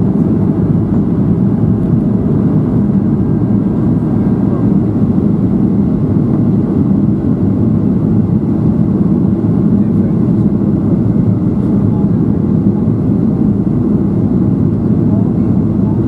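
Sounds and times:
airplane cabin rumble: 0:00.0 - 0:16.0.

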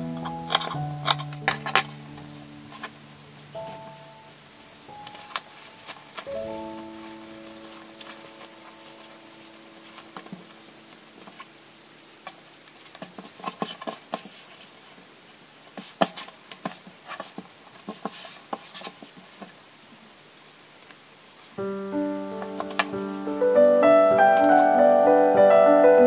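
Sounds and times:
fabric rustling: 0:00.1 - 0:19.6, 0:21.3 - 0:25.0.

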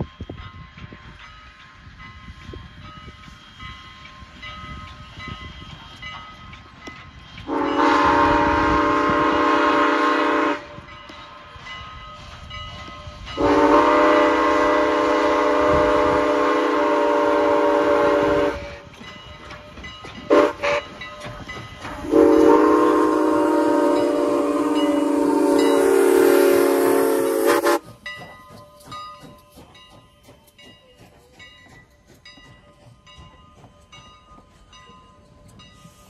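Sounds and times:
low rumble of train: 0:00.0 - 0:36.0
steam whistle blasts: 0:07.4 - 0:11.0, 0:13.3 - 0:19.0, 0:20.3 - 0:21.0, 0:21.9 - 0:27.9.

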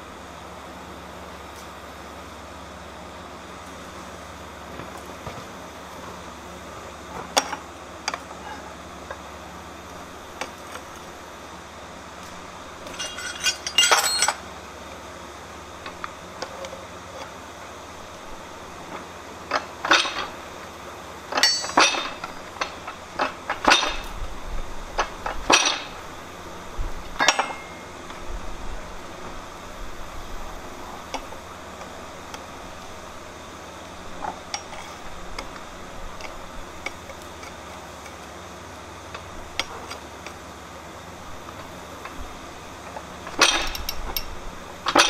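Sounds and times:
steel striking steel: 0:21.4 - 0:22.4, 0:27.2 - 0:28.0.

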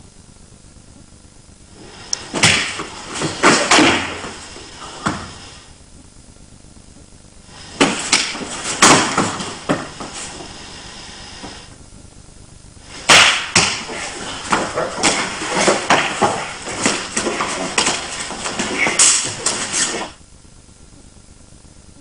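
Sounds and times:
hits and thuds on padded mat: 0:02.2 - 0:05.4, 0:07.8 - 0:10.3, 0:12.9 - 0:20.1.

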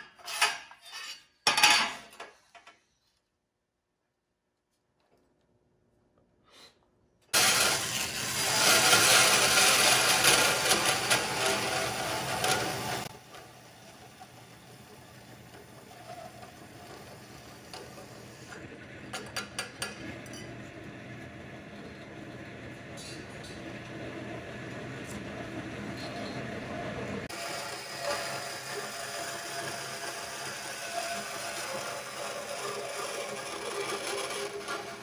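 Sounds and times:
bandsaw cutting metal: 0:07.3 - 0:13.1, 0:27.3 - 0:35.0
bandsaw running: 0:07.3 - 0:18.7, 0:27.3 - 0:35.0.

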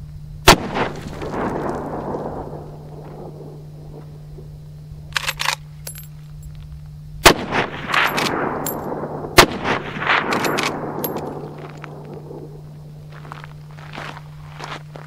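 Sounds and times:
rifle shots with echo: 0:00.5 - 0:04.2, 0:07.2 - 0:12.7
rifle lever metallic clicks: 0:05.1 - 0:06.1, 0:10.3 - 0:11.3.

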